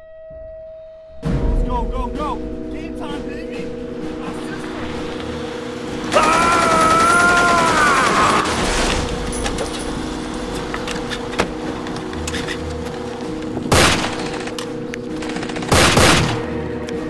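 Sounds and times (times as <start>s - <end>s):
bursts of gunfire: 6.1s - 8.9s, 13.7s - 16.6s
gunshots: 6.1s - 9.0s, 13.7s - 14.6s, 15.2s - 16.6s
steady low drone: 8.5s - 17.0s.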